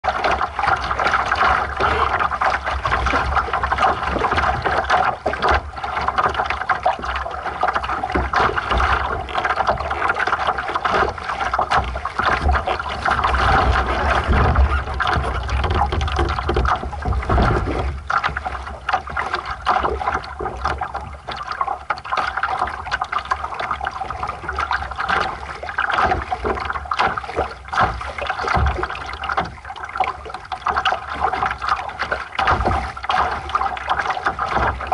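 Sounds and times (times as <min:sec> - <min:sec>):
water splashing along hull: 0:00.0 - 0:34.9
wind rumble on microphone: 0:12.1 - 0:21.3.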